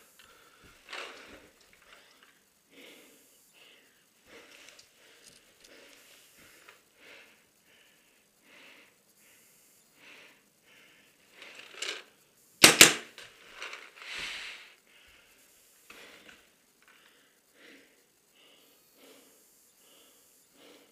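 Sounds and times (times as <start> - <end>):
person breathing hard: 0.0 - 12.3, 13.4 - 20.9
paintball shots: 12.6 - 13.2.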